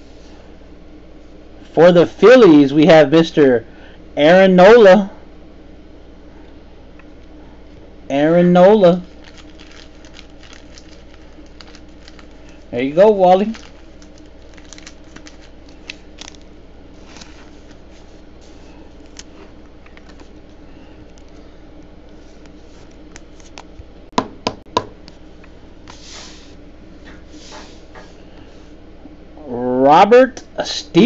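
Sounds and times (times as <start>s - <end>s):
steady low hum: 0.0s - 31.0s
plastic sleeve rustling: 8.9s - 21.5s.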